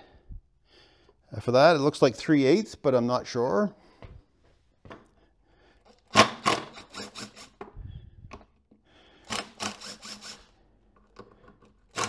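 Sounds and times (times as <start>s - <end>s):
cordless driver bursts: 6.1s - 7.6s, 9.2s - 10.6s.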